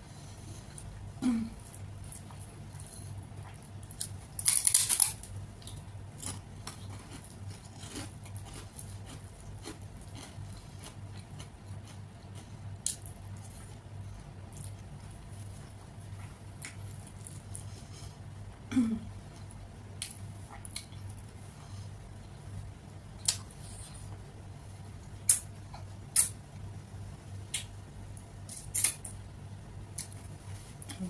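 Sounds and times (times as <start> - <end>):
steady low hum: 0.0 - 31.0
soft chewing: 0.1 - 18.4, 19.2 - 22.5.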